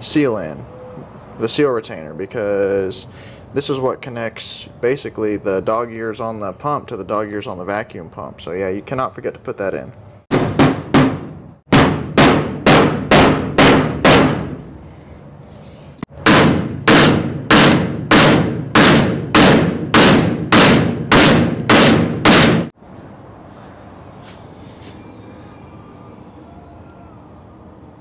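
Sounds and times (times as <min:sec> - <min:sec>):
hammer blows on metal: 0:16.2 - 0:22.7.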